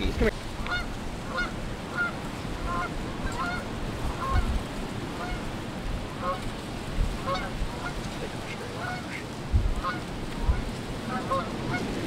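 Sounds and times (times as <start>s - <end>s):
geese honking: 0.5s - 12.0s
low thuds: 9.4s - 10.8s.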